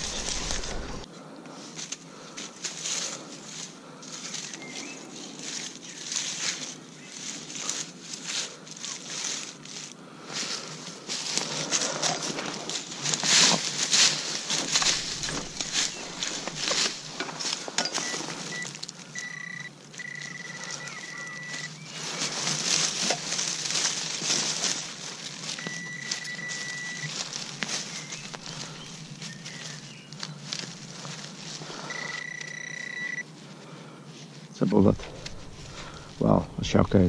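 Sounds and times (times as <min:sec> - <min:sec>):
digging through soil and leaves: 0:00.0 - 0:37.0
metal detector high-pitched tone: 0:17.9 - 0:21.8, 0:25.6 - 0:27.2, 0:31.8 - 0:33.3.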